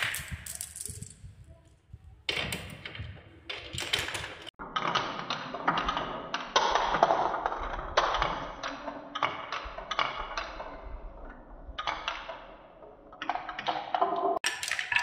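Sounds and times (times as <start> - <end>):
marbles rolling on wooden track: 0.0 - 1.4, 2.4 - 15.0.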